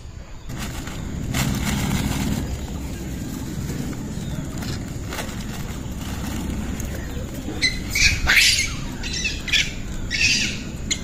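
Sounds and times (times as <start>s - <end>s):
monkey squealing: 7.6s - 11.0s.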